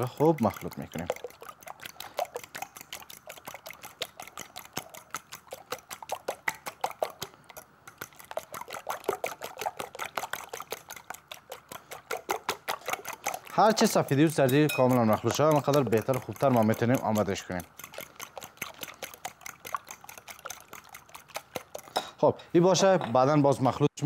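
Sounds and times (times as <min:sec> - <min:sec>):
whisk clicking against glass bowl: 0:00.0 - 0:22.0.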